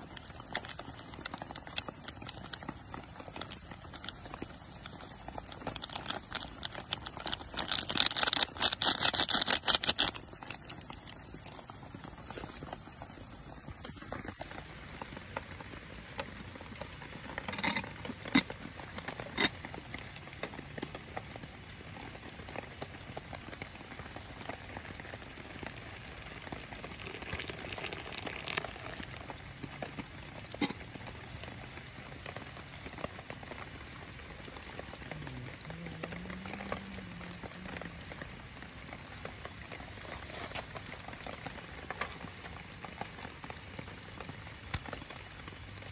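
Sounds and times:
foil sachet crinkling: 0.0 - 14.6.

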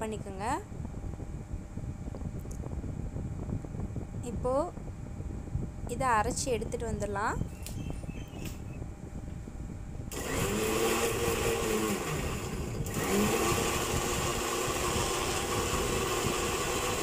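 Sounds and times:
mixer grinder motor running: 10.1 - 17.0.

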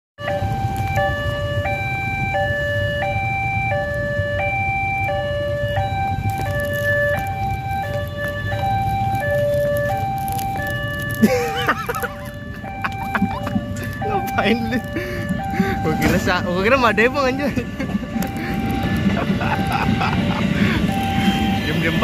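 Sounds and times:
traffic engine rumble: 0.2 - 22.0
two-tone crossing alarm: 0.2 - 22.0.

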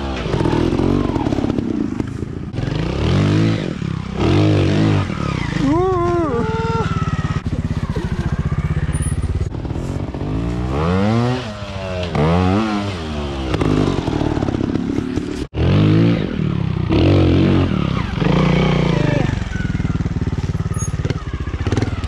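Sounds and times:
motorcycle engines revving: 0.0 - 22.0.

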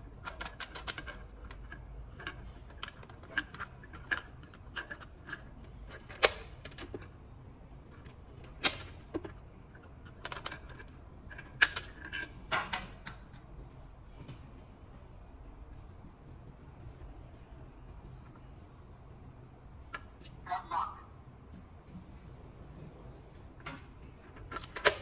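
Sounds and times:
key clicking and rattling in lock: 0.2 - 7.1, 23.6 - 25.0
sharp lock clacks: 8.4 - 9.4, 24.4 - 25.0.

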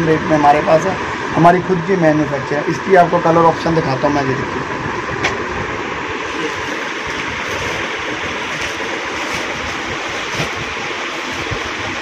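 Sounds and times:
rushing background noise: 0.0 - 12.0
plastic packaging crinkling: 6.7 - 11.8.

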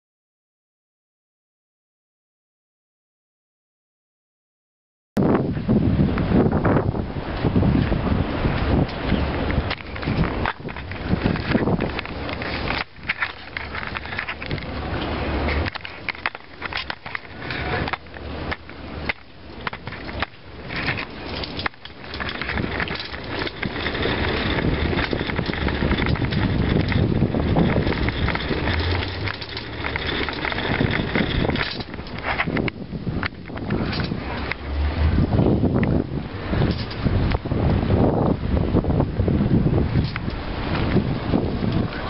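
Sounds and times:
wind buffeting microphone: 5.2 - 42.0
crackling handling noise: 8.8 - 34.9.

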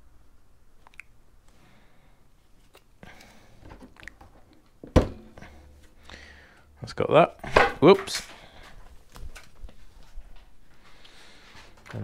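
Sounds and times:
light clicks of handling plastic parts: 7.9 - 10.6.

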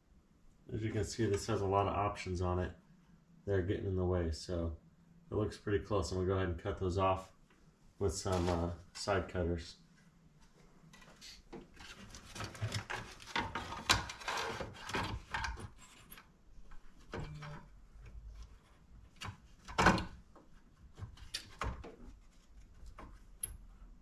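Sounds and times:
plastic scraping and handling: 11.0 - 16.1.

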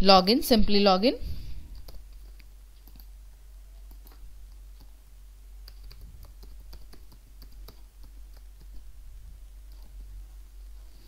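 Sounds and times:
low steady hum: 0.0 - 11.0
computer keyboard typing: 1.7 - 3.2, 3.8 - 5.0, 5.6 - 9.0, 9.6 - 10.1.

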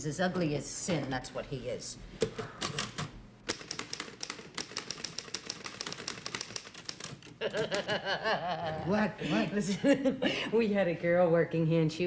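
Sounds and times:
typewriter keystrokes clattering: 2.6 - 7.9.

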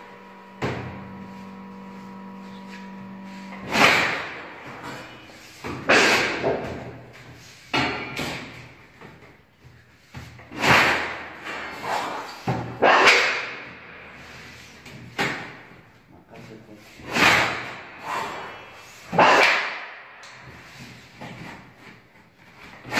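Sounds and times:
shear cutting sheet metal: 0.0 - 6.8, 10.5 - 13.8, 17.0 - 20.0
steady hum: 0.0 - 9.0.

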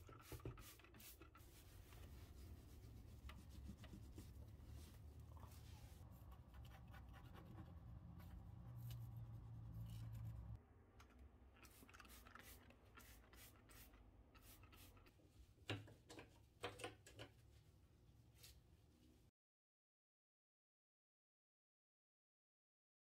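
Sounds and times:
scratching and scraping on countertop: 0.0 - 10.6.

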